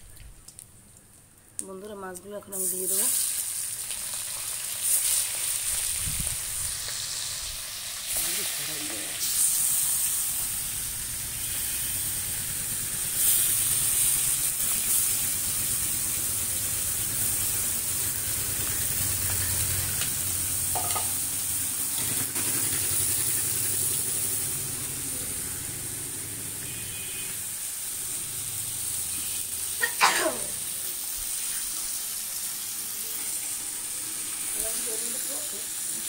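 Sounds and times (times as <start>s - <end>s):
fish sizzling in oil: 1.7s - 36.0s.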